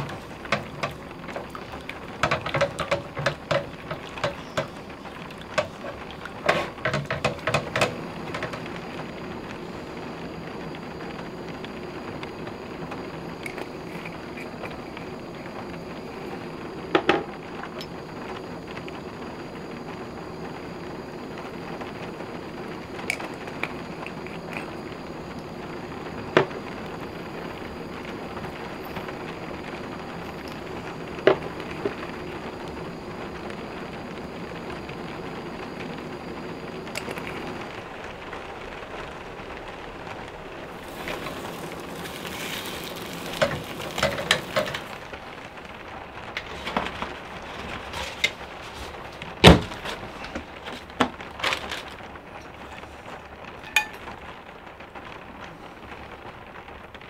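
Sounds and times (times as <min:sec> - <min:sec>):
eggs hissing in a pan: 0:00.0 - 0:54.3.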